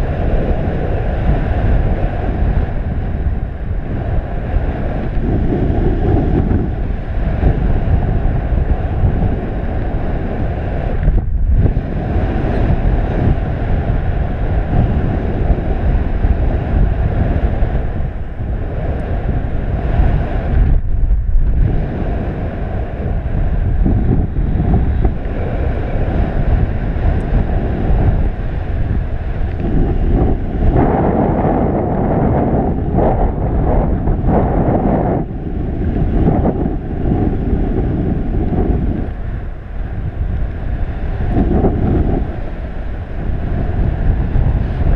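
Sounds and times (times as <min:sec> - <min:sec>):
wind rushing over microphone: 0:00.0 - 0:44.9.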